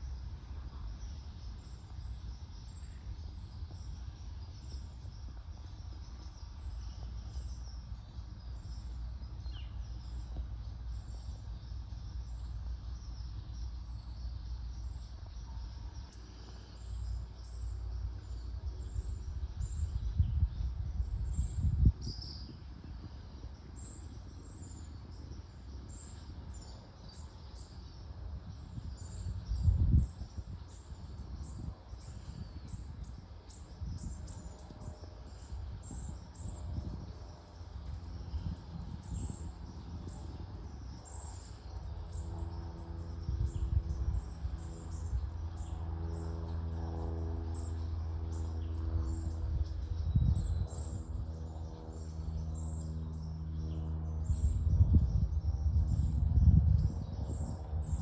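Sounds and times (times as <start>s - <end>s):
low engine hum: 0.0s - 58.0s
wind buffeting microphone: 17.4s - 58.0s.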